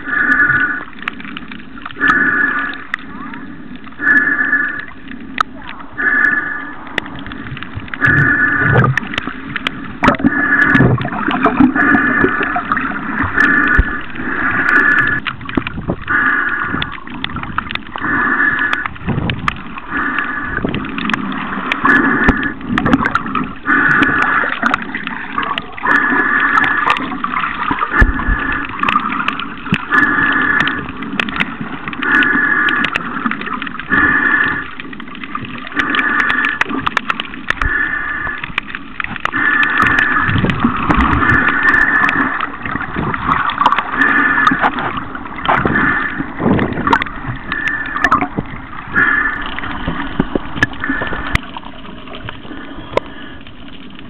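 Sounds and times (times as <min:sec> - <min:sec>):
repeating underwater sound: 0:00.0 - 0:53.7
water gurgling and splashing: 0:00.0 - 0:54.0
small scattered clicks: 0:00.3 - 0:02.1, 0:06.8 - 0:11.7, 0:16.7 - 0:25.7, 0:26.5 - 0:54.0.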